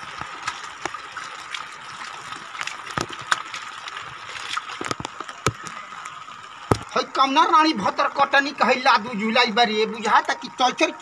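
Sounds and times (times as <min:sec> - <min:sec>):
hands splashing muddy water: 0:00.0 - 0:05.7.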